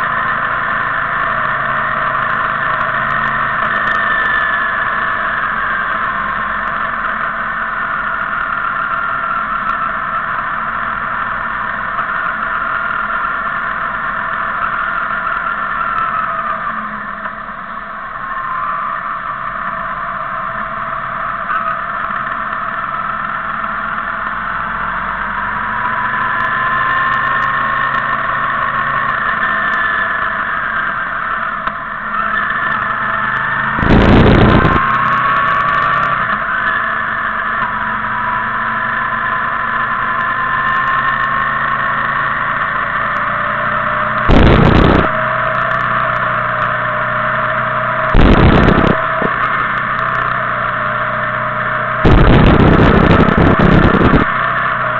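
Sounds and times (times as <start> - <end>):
motorcycle engines running: 0.0 - 54.9
loud bursts of noise: 26.7 - 38.3, 43.6 - 54.9.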